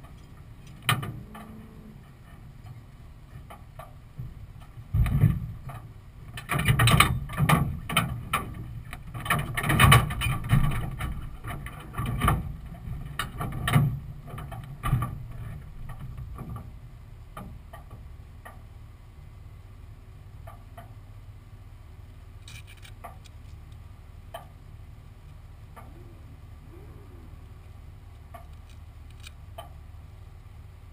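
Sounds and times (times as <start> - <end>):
steady low rumble: 0.0 - 30.9
knocks and rattles in car body: 3.3 - 18.6.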